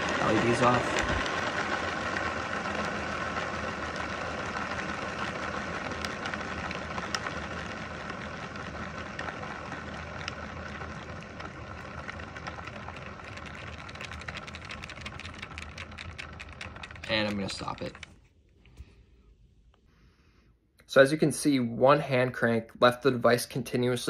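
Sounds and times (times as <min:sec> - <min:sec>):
rotor wheel whirring: 0:00.0 - 0:19.0.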